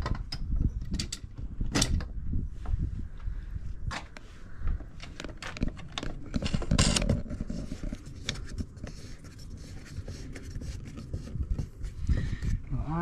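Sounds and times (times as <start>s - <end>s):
bike rack clicks and knocks: 0.0s - 2.1s.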